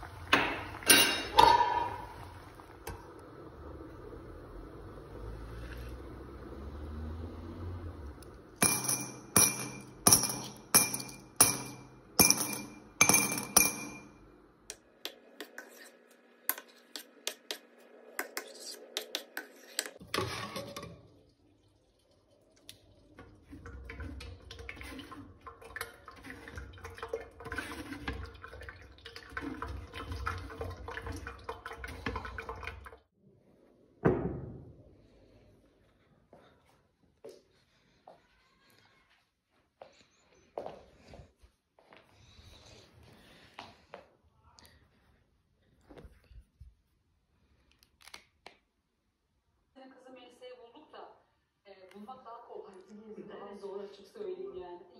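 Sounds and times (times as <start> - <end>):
metal ladle scraping pots: 0.0 - 3.0, 15.4 - 17.6, 18.2 - 21.1, 23.9 - 28.5
liquid sounds: 0.0 - 8.6, 14.8 - 33.1
blender cup clinking on glass: 8.6 - 14.1.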